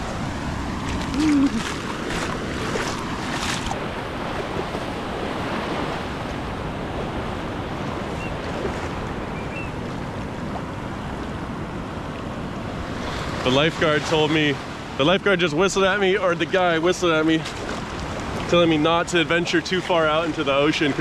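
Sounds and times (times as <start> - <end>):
wind rumbling on microphone: 0.0 - 15.4
waves washing in: 0.0 - 21.0.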